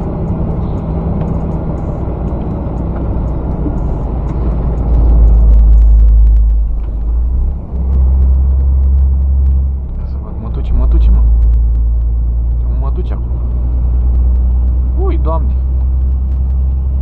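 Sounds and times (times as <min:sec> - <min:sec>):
deep low rumble: 0:00.0 - 0:17.0
truck engine and road noise: 0:00.0 - 0:17.0.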